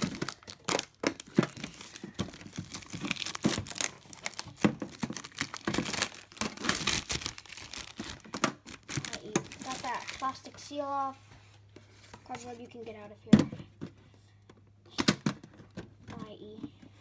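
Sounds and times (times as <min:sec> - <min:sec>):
plastic wrap crinkling: 0:00.0 - 0:10.7.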